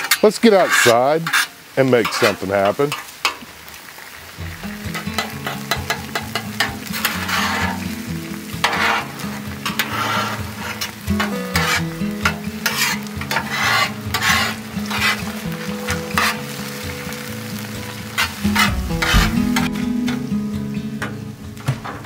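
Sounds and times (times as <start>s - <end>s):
metal spatula scraping griddle: 0.0s - 3.1s, 4.9s - 8.0s, 8.6s - 16.6s, 18.1s - 19.9s
food sizzling: 0.0s - 22.0s.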